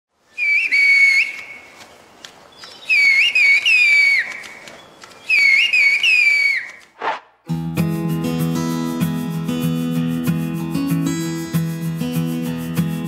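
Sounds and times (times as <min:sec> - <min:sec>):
woman whistling shrill phrases: 0:00.4 - 0:01.6, 0:05.3 - 0:06.8.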